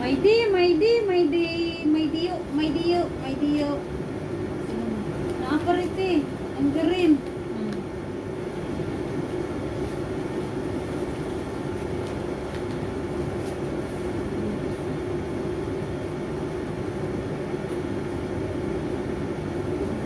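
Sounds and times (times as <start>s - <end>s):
paper crackling: 10.9s - 14.1s.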